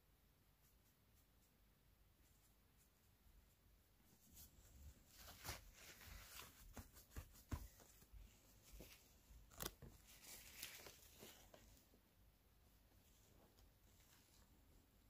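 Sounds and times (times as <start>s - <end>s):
paper towel rustling: 4.0s - 11.9s.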